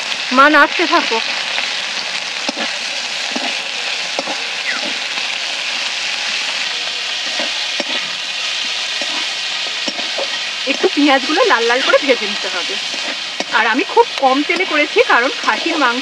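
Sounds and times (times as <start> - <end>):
onions sizzling in oil: 0.0 - 16.0
spatula scraping and knocking pan: 2.4 - 3.6, 4.2 - 5.0, 7.2 - 16.0.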